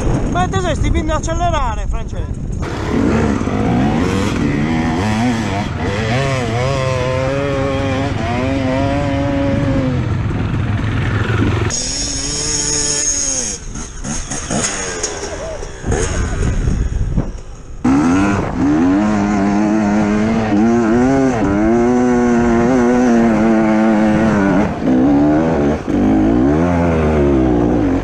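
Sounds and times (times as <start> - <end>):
dirt bike engine revving: 2.6 - 28.0
clatter: 10.3 - 20.0.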